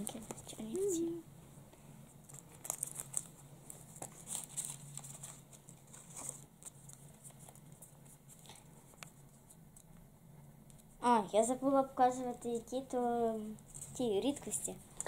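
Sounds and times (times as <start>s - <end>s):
paper rustling and crinkling: 2.2s - 9.6s.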